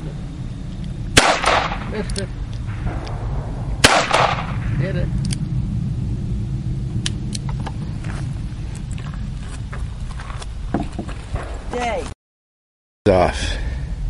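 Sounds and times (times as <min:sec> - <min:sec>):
low rumble: 0:00.0 - 0:12.1
revolver gunshot with echo: 0:01.2 - 0:02.0, 0:02.7 - 0:04.9.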